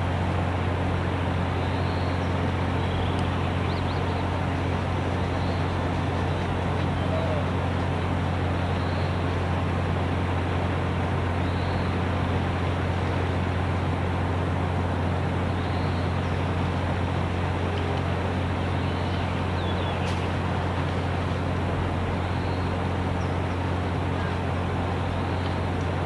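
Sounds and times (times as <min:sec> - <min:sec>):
heavy rain hiss: 0:00.0 - 0:26.0
low engine-like hum: 0:00.0 - 0:26.0.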